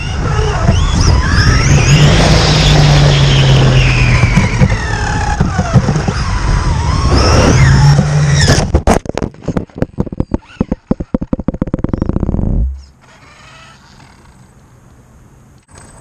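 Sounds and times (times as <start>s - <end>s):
electric motor whining: 0.0s - 8.8s
rapid clatter on gravel: 8.6s - 12.5s.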